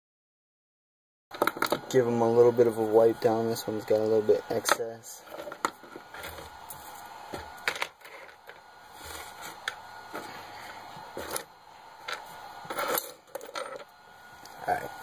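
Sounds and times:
small plastic parts clicking and knocking: 0:01.4 - 0:01.8.

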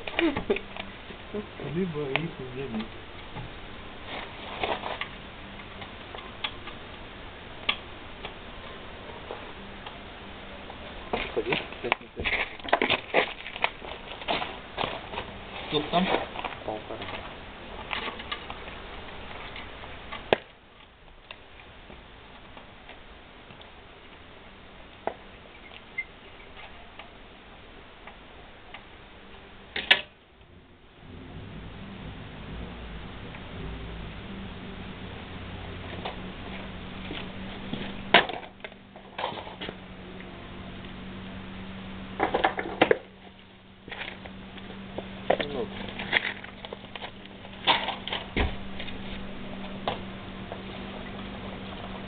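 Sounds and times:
rustling handling noise: 0:00.0 - 0:06.4, 0:10.6 - 0:24.2
steady low hum: 0:00.0 - 0:52.0.

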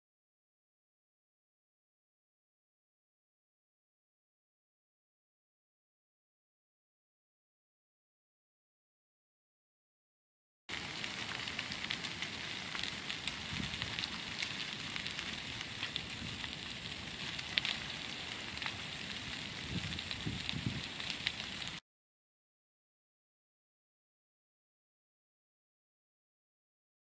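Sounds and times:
fire crackling and popping: 0:10.7 - 0:21.8.

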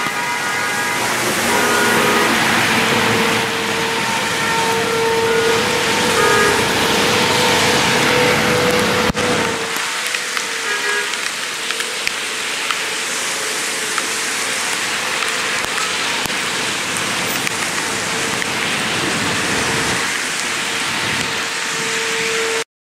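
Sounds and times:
rain falling: 0:00.0 - 0:22.6
close raindrop taps: 0:08.7 - 0:10.5, 0:11.1 - 0:12.9, 0:13.8 - 0:18.8.

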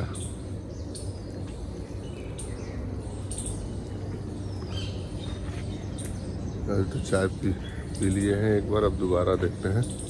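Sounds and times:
birds chirping: 0:00.0 - 0:10.0
steady low rumble: 0:00.0 - 0:10.0.

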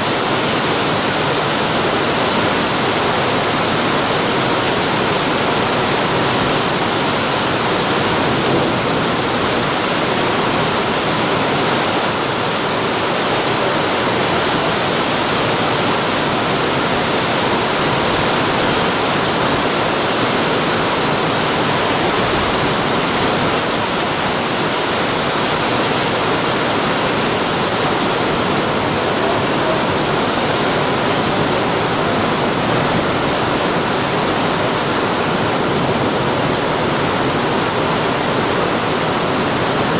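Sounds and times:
heavy rain on asphalt: 0:00.0 - 0:39.9.

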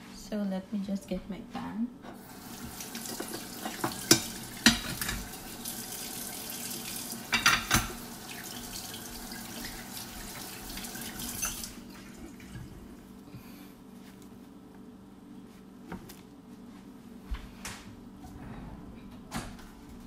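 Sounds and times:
tap running into a sink: 0:02.5 - 0:06.3.

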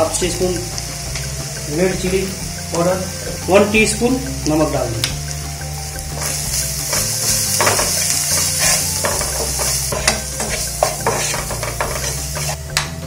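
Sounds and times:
onions sizzling in a pan: 0:00.0 - 0:13.0
spatula scraping a pan: 0:06.1 - 0:12.6
spatula knocking against pan: 0:06.9 - 0:12.2.

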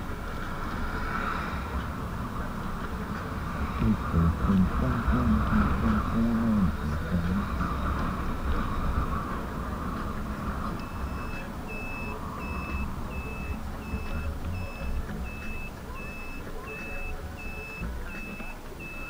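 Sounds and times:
road rumble: 0:00.0 - 0:19.0
electronic warning beeps: 0:10.8 - 0:19.0.

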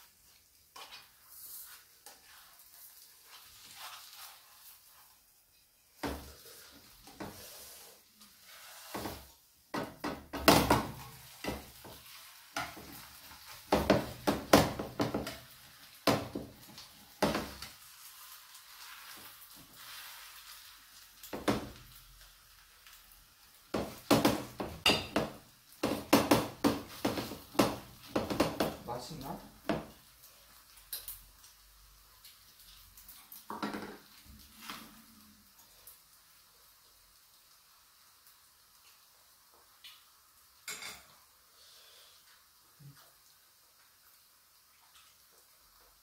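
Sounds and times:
batter sizzling in oil: 0:00.0 - 0:46.0
spatula scraping frying pan: 0:00.2 - 0:09.4, 0:10.7 - 0:21.8.

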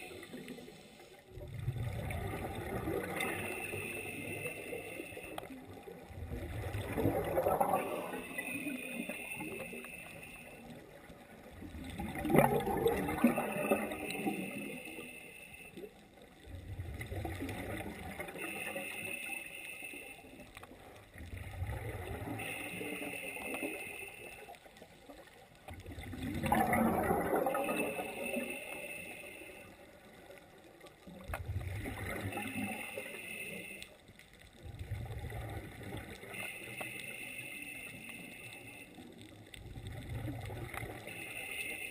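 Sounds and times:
exhaled bubbles gurgling: 0:00.0 - 0:15.2, 0:15.9 - 0:19.1, 0:20.0 - 0:24.0, 0:25.1 - 0:29.0, 0:30.0 - 0:33.8, 0:34.5 - 0:36.9, 0:39.0 - 0:41.9
regulator inhale hiss: 0:03.1 - 0:05.6, 0:07.8 - 0:10.9, 0:13.5 - 0:15.9, 0:18.3 - 0:20.5, 0:22.3 - 0:24.8, 0:27.6 - 0:30.0, 0:32.4 - 0:34.0, 0:36.2 - 0:39.1, 0:41.0 - 0:41.9.

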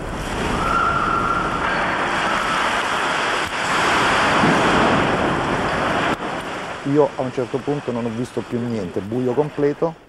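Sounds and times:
masonry crashing down: 0:00.0 - 0:06.8.

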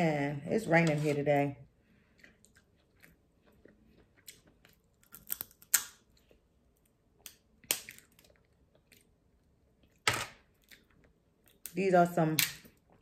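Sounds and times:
chewing: 0:02.0 - 0:05.5, 0:07.8 - 0:09.2
crab shell cracking: 0:05.0 - 0:06.0, 0:07.2 - 0:08.4.

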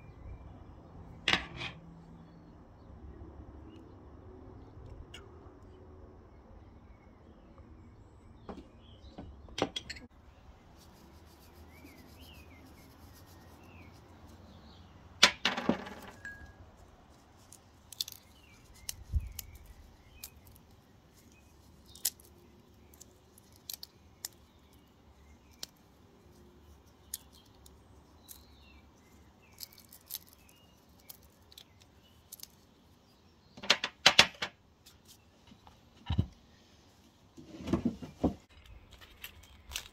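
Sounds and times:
tableware clicks and taps: 0:09.6 - 0:10.1.

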